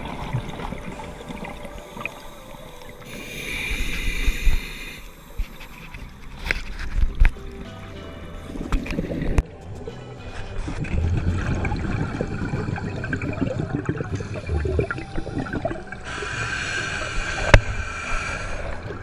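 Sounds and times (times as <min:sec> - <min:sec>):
underwater bubbles gurgling: 0:00.0 - 0:05.3, 0:08.4 - 0:09.4, 0:10.6 - 0:19.0
steady hiss: 0:01.7 - 0:06.2.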